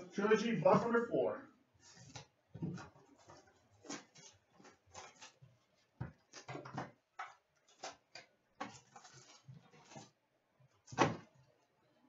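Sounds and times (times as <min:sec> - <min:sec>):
foil packs crinkling: 0:08.6 - 0:10.1.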